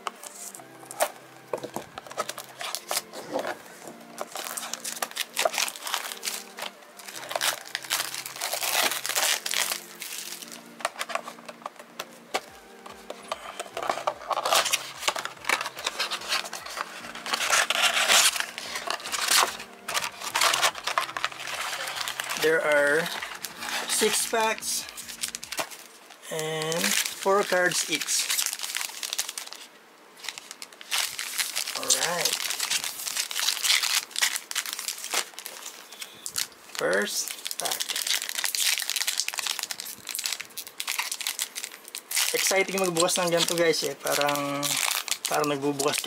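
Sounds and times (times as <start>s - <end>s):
background music: 0.0s - 29.9s, 30.9s - 35.2s
plastic wrapping crinkling and tearing: 0.0s - 46.0s.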